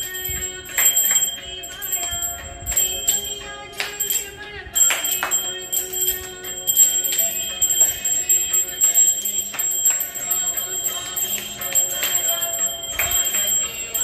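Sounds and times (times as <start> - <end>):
brass hand bell ringing: 0.0 - 14.0
devotional music: 0.0 - 14.0.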